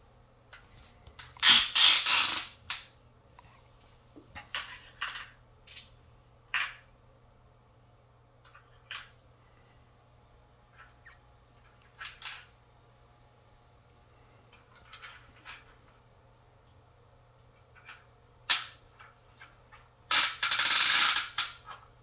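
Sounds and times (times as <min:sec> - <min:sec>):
plastic toys clattering: 0:04.3 - 0:06.9, 0:08.4 - 0:09.2, 0:10.7 - 0:12.6, 0:14.5 - 0:16.0.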